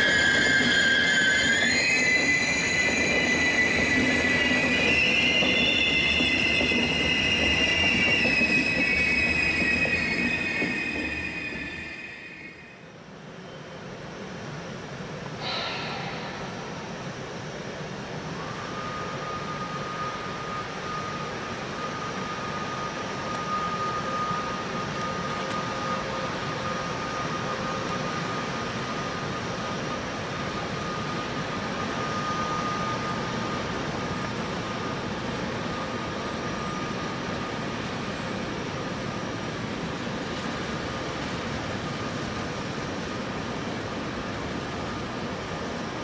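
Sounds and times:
electric locomotive running: 0.0 - 46.0.

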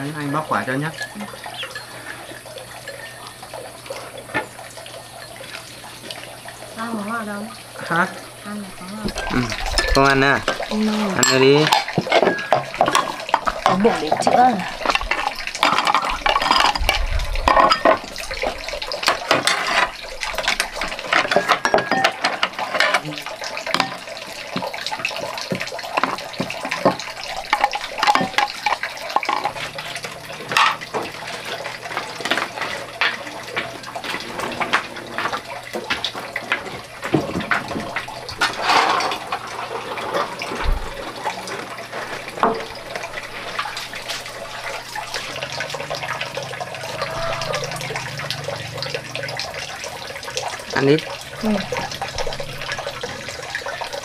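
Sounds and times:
dishes clinking: 0.0 - 5.7, 9.0 - 23.1, 23.7 - 24.7, 25.5 - 35.4, 37.1 - 41.4, 42.0 - 42.9
running water: 0.0 - 54.0.

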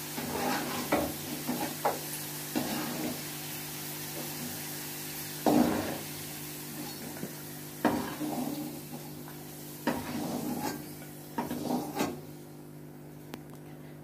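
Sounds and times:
oil sizzling: 0.0 - 12.5
metal spoon scraping a wok: 0.2 - 1.8, 2.5 - 3.2, 9.9 - 12.2.

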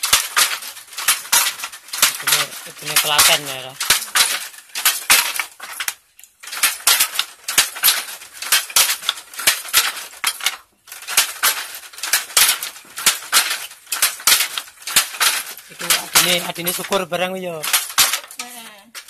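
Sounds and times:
wooden handloom clacking: 0.0 - 19.0.

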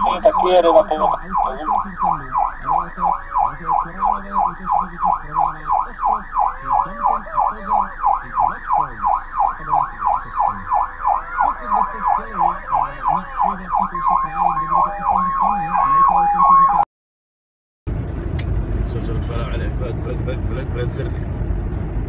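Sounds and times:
police siren yelping: 0.0 - 16.8.

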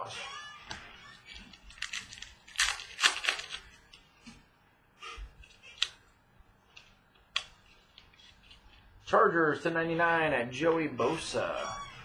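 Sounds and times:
cards flicking and snapping: 0.7 - 4.4, 5.4 - 6.0, 6.7 - 8.8.

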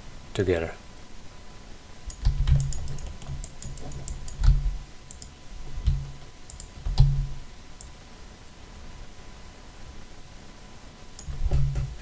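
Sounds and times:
mouse and keyboard clicks: 2.1 - 7.2.

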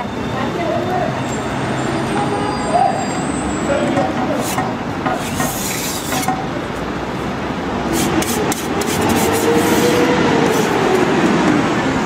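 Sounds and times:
street traffic noise: 0.0 - 12.0
metal spatula scraping griddle: 4.4 - 6.4, 7.9 - 10.8
passing vehicle engine: 7.3 - 12.0.

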